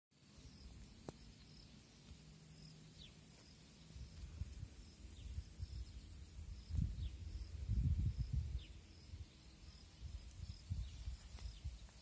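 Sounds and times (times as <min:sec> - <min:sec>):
small birds chirping: 0:00.2 - 0:12.0
wind on microphone: 0:04.0 - 0:12.0.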